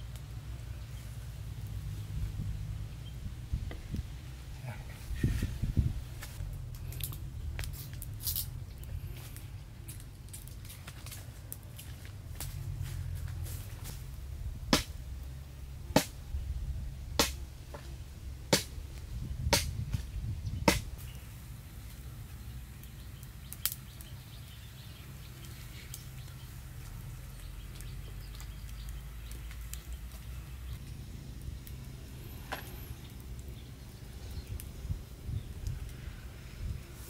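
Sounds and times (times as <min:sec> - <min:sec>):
fire low rush: 0:00.0 - 0:37.0
campfire pops: 0:06.2 - 0:16.4, 0:17.1 - 0:24.6, 0:25.2 - 0:36.9.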